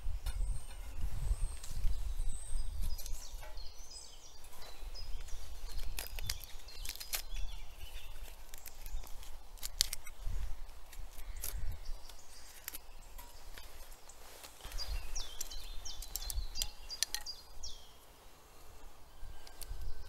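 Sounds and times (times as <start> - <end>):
low wind rumble: 0.0 - 20.0
small birds chirping: 0.0 - 20.0
sharp clicks: 8.2 - 10.2, 14.4 - 17.4.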